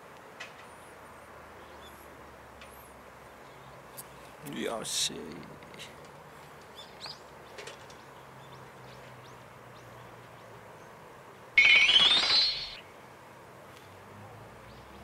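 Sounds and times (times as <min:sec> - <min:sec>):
short rising alert tone: 0:11.6 - 0:12.8.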